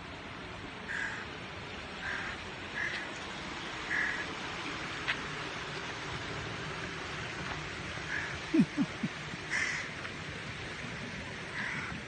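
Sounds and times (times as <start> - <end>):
background hiss: 0.0 - 12.0
crows cawing: 0.9 - 1.3, 2.0 - 3.1, 3.9 - 4.3, 8.1 - 8.4, 9.5 - 10.1, 11.5 - 12.0.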